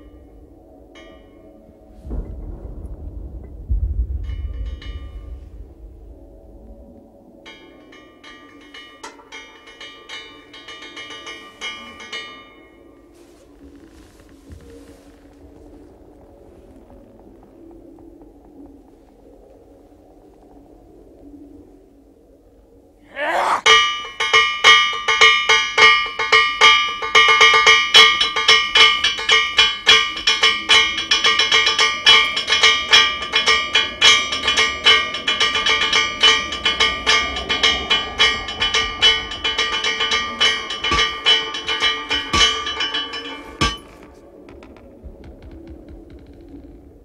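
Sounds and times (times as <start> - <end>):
quick strikes on ringing metal: 23.6 - 44.0.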